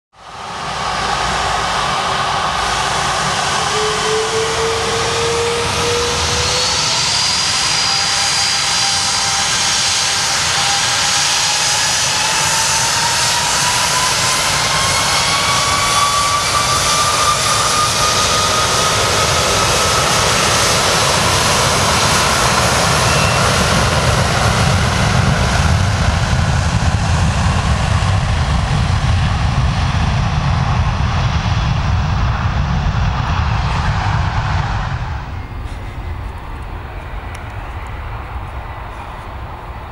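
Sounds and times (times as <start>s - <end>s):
loud rushing noise: 0.2s - 9.0s
jet engines spooling up: 0.2s - 39.9s
low rumble: 25.5s - 39.9s.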